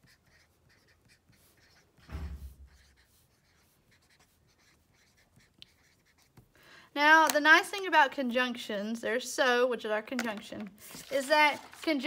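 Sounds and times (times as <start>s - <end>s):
marker writing on paper: 0.0s - 6.6s.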